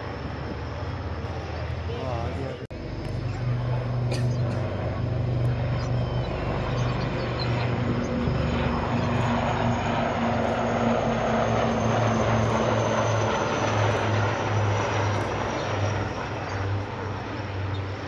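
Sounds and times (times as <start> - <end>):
helicopter rotors pulsing: 0.0 - 18.0
rushing engine and rotor noise: 0.0 - 18.0.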